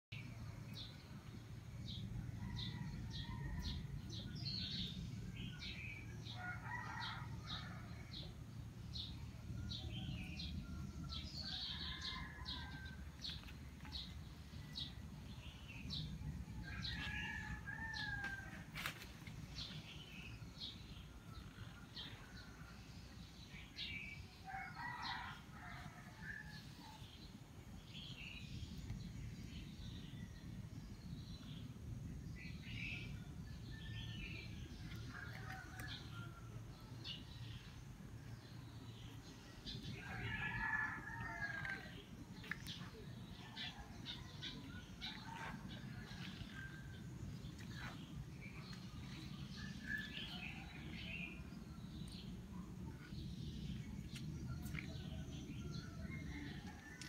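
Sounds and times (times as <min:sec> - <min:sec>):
steady low rumble: 0:07.2 - 0:23.8, 0:40.9 - 0:56.8.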